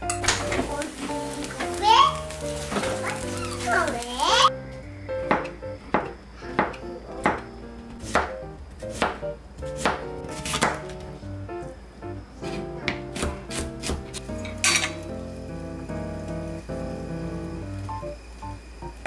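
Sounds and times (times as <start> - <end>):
soft background music: 0.0 - 19.0
knife chopping on cutting board: 5.3 - 7.4, 8.0 - 11.0, 12.5 - 14.2.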